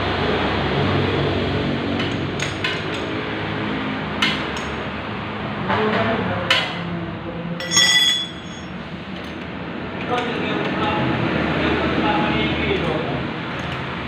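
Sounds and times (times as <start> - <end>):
workshop hum: 0.0 - 14.0
ringing metal clink: 7.6 - 8.8.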